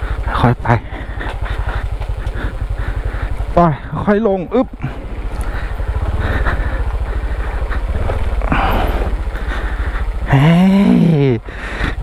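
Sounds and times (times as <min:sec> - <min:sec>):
motorcycle engine at low revs: 0:00.0 - 0:12.0
person exclaiming loudly: 0:10.3 - 0:11.4.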